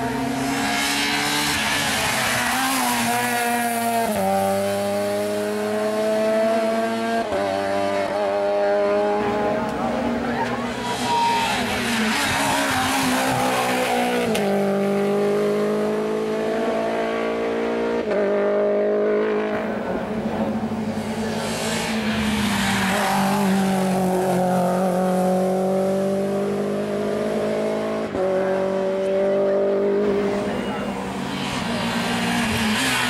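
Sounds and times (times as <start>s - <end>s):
racing car engines at high revs: 0.0s - 33.0s.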